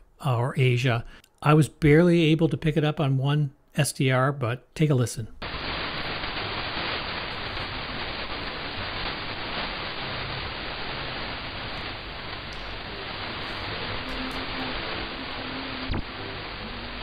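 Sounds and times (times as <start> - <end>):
radio static hiss: 5.4 - 17.0
weak radio signal: 5.4 - 17.0.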